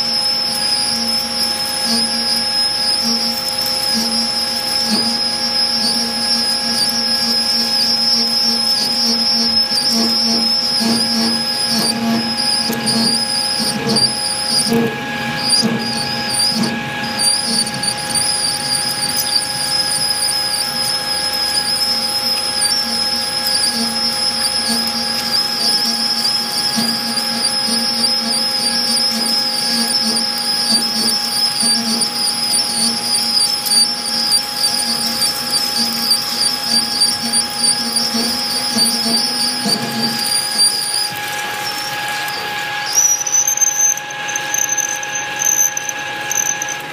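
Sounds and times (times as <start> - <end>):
high-pitched cutting whine: 0.0 - 46.9
lathe machine tones: 0.0 - 46.9.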